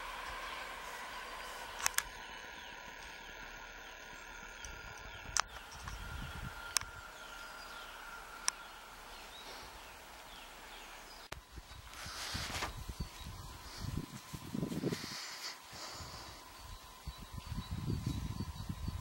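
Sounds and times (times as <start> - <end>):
faint steady whine: 0.0 - 19.0
small birds chirping: 0.0 - 19.0
sharp clicks: 1.8 - 2.2, 4.6 - 6.0.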